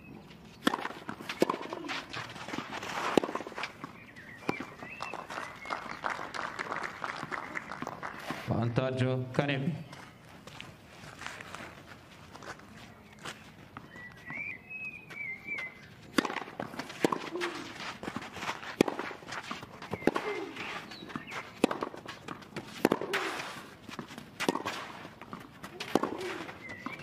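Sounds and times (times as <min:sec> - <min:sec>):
racket striking tennis ball: 0:00.6 - 0:05.0, 0:16.1 - 0:27.0
bird chirping: 0:03.8 - 0:06.1, 0:12.9 - 0:16.0, 0:19.8 - 0:21.6, 0:26.5 - 0:27.0.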